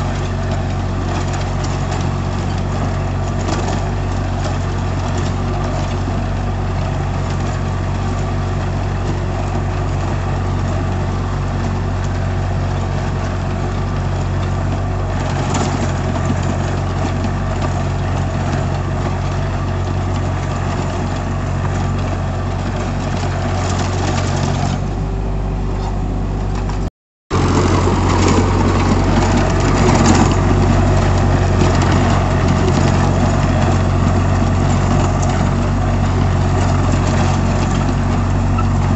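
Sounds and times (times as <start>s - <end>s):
rotavator churning soil: 0.0s - 38.9s
tractor diesel engine running: 0.0s - 38.9s.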